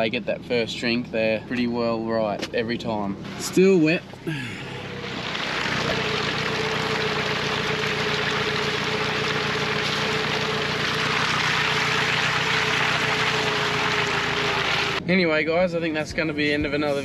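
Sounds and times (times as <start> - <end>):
low engine hum: 0.0 - 17.0
steady whine: 0.2 - 15.0
tyres hissing through wet mud: 4.7 - 15.0.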